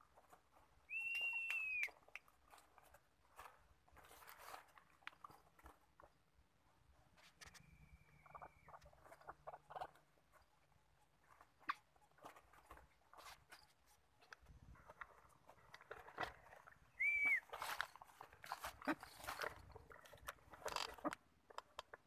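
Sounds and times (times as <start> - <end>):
rustling in dry leaves: 2.4 - 5.8, 14.8 - 21.1.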